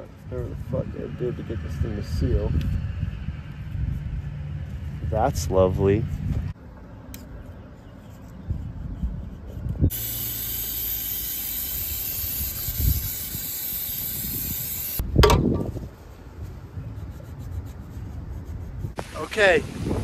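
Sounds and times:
aerosol spray can hissing: 9.9 - 15.0.

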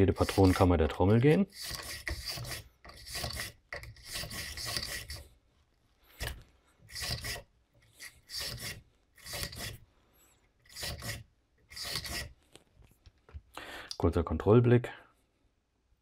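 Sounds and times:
wire brush scrubbing metal: 0.0 - 5.3, 6.9 - 9.8, 10.7 - 12.3.

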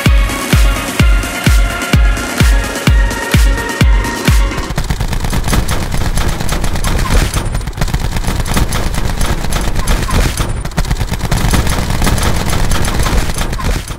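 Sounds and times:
rapid crackling bangs: 4.2 - 13.9.

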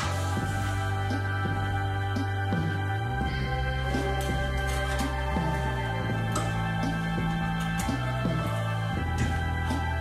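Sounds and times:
slow gentle instrumental music: 0.0 - 10.0.

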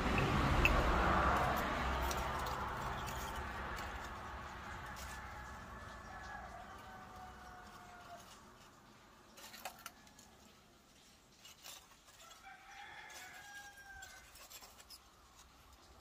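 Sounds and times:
charcoal clinking in metal pot: 0.0 - 16.0
rooster crowing faintly: 0.3 - 8.8, 11.6 - 15.0.

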